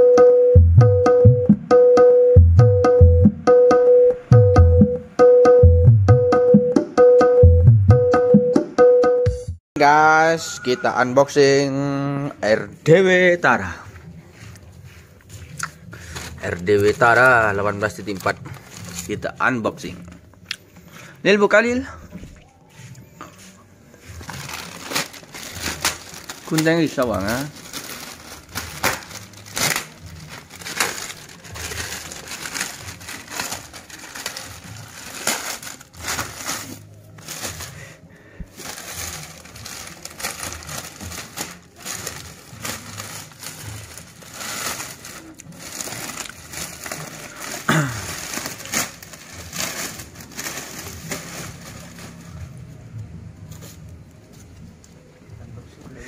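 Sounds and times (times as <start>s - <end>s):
cardboard packaging rustling: 16.0s - 20.2s, 24.0s - 54.5s.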